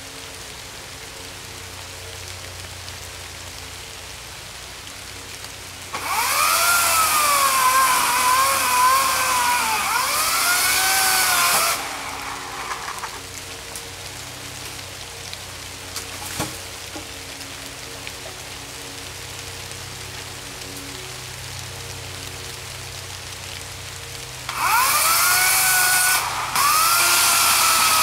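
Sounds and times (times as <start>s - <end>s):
rain hiss: 0.0s - 28.0s
electric chainsaw whining: 5.9s - 13.8s, 24.5s - 28.0s.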